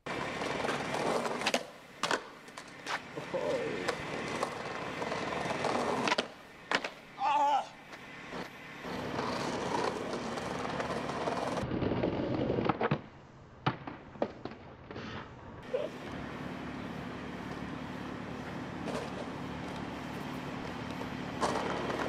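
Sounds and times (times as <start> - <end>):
skateboard clacks: 0.0 - 7.0, 7.8 - 13.1, 20.6 - 22.0
skateboard wheels rolling on brick: 0.0 - 22.0
skateboard ollie snap: 0.4 - 4.6, 5.9 - 7.0
skateboard landing smacks: 1.4 - 3.0, 6.0 - 7.0, 11.7 - 15.1.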